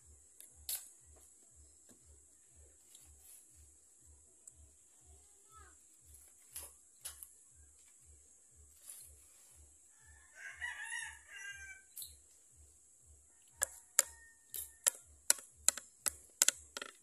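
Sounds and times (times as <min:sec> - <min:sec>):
steady high hiss: 0:00.0 - 0:17.0
rooster crowing: 0:09.9 - 0:12.0, 0:13.3 - 0:15.1
sharp clicks: 0:13.6 - 0:17.0.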